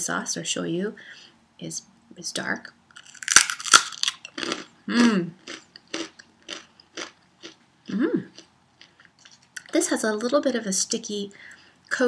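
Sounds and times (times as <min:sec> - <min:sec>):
rice cracker crunching: 0:03.0 - 0:07.6.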